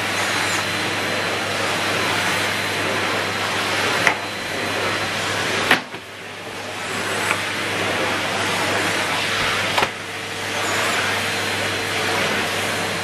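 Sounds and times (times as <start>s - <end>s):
vacuum cleaner running on carpet: 0.0s - 13.0s.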